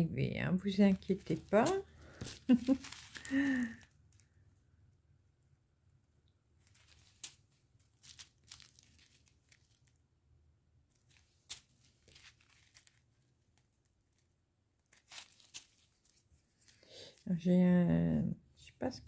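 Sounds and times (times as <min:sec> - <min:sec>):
plastic bags crinkling: 0:00.6 - 0:04.3, 0:06.6 - 0:10.0, 0:11.0 - 0:13.1, 0:14.9 - 0:17.2.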